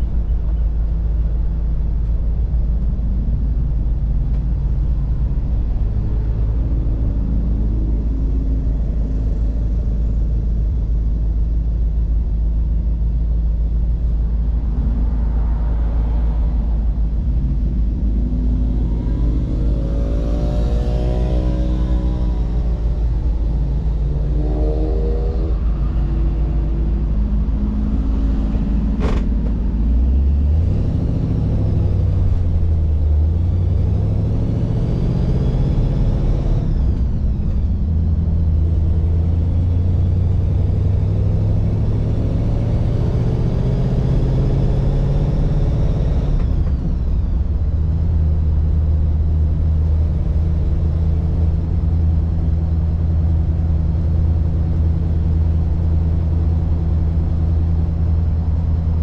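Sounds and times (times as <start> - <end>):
car engine accelerating and shifting: 0.0 - 59.0.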